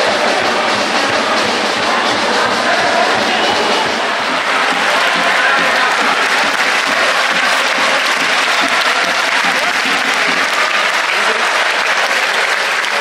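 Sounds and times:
crowd voices: 0:00.0 - 0:13.0
stadium crowd applauding: 0:03.6 - 0:13.0.

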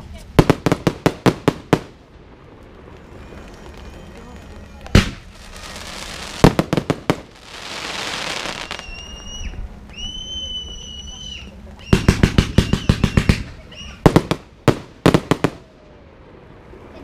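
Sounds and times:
fireworks crackling hiss: 0:00.0 - 0:17.0
fireworks sharp bangs: 0:00.2 - 0:09.2, 0:11.9 - 0:15.7
fireworks whistles: 0:03.0 - 0:15.6.

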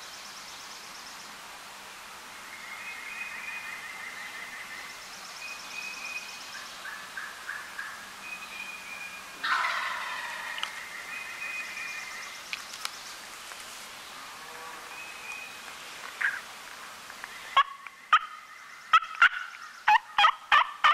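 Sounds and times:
thin whistled bird calls: 0:02.4 - 0:13.0, 0:14.9 - 0:16.4
turkey gobbling: 0:09.4 - 0:10.8, 0:17.6 - 0:20.9.

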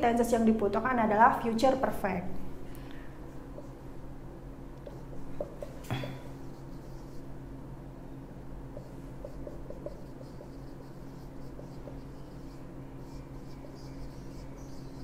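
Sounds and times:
steady low hum: 0:00.0 - 0:15.0
marker squeaking on whiteboard: 0:06.4 - 0:07.3, 0:08.8 - 0:15.0.

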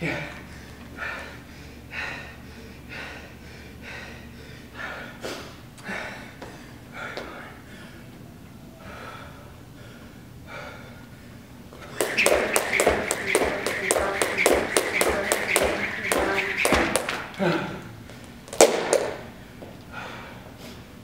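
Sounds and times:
man panting hard: 0:00.1 - 0:08.1, 0:08.8 - 0:12.2.

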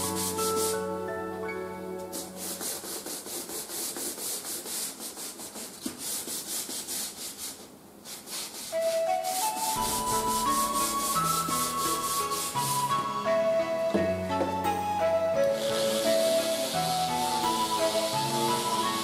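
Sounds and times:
sponge sanding wooden floorboards: 0:00.0 - 0:00.9, 0:02.1 - 0:13.1, 0:15.5 - 0:19.0
background music with bass: 0:09.8 - 0:18.8.

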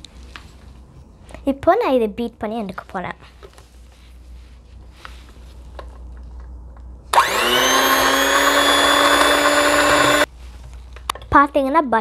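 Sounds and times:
electric hand mixer whine: 0:07.1 - 0:10.3.

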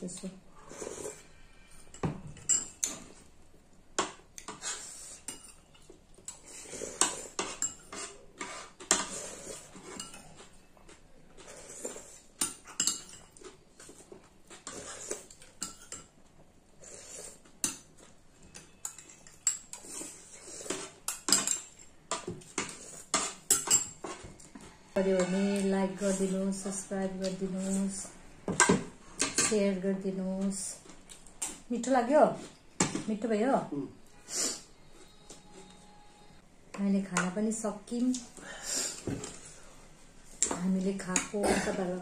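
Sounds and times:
spoons clinking on porcelain bowls: 0:12.4 - 0:13.4, 0:20.7 - 0:24.2.

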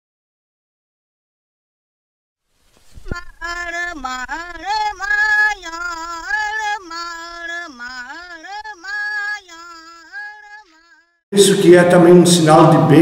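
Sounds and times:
person singing solo: 0:03.0 - 0:11.1.

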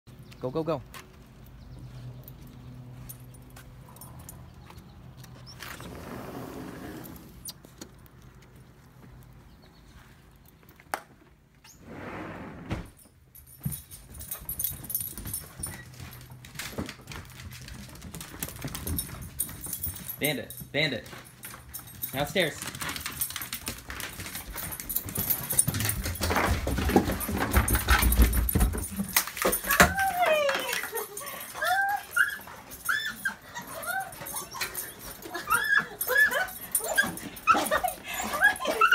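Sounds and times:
dog collar tags jingling: 0:01.4 - 0:05.6, 0:13.1 - 0:38.9
dog claws clicking on floor: 0:21.1 - 0:31.1
dog whining and yipping: 0:29.7 - 0:38.9.

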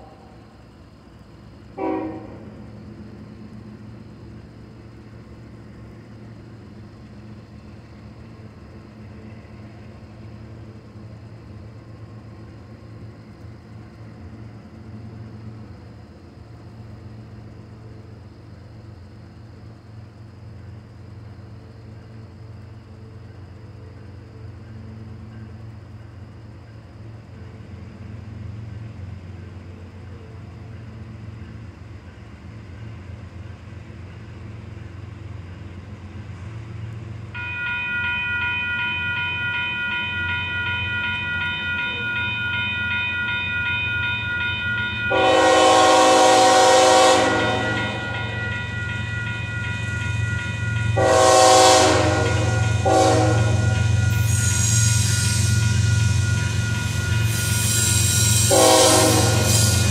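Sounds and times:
diesel locomotive rumble: 0:00.0 - 0:59.9
locomotive horn blowing: 0:01.8 - 0:02.5, 0:45.1 - 0:48.4, 0:51.0 - 0:54.1, 0:58.4 - 0:59.9.

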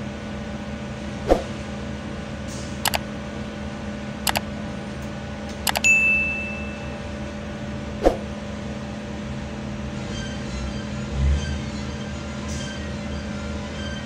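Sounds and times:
bell ding: 0:05.7 - 0:07.1.

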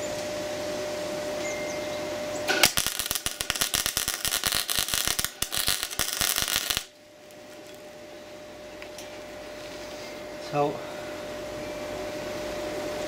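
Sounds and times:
welder arc crackling: 0:02.5 - 0:08.0.

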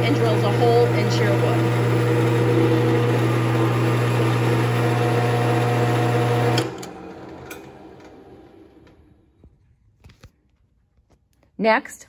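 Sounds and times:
drill press motor humming: 0:00.0 - 0:09.2.

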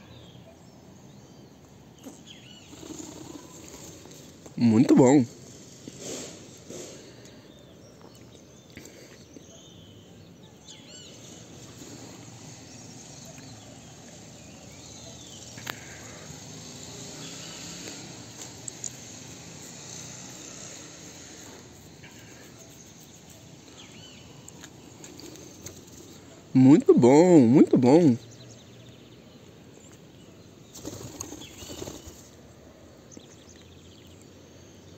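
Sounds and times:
outdoor background noise: 0:00.0 - 0:34.9.

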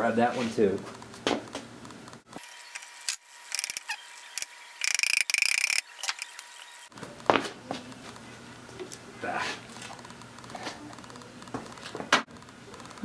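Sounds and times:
ratchet wrench clicking: 0:02.8 - 0:06.3.

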